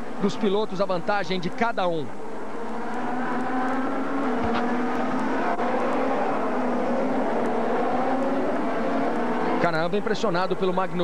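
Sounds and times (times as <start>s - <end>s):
racing car engine: 0.0s - 11.0s.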